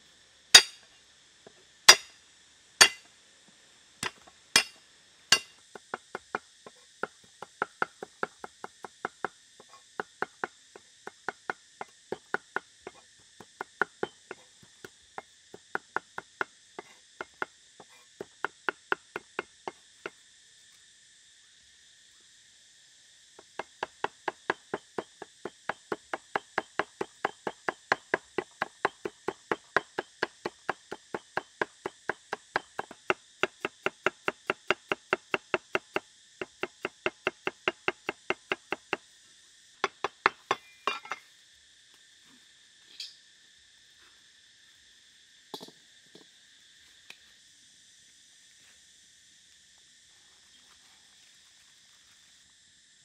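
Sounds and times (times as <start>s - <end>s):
high insect drone: 0.0s - 53.0s
cleaver chopping on wooden block: 0.6s - 0.8s, 1.9s - 2.1s, 4.0s - 6.4s.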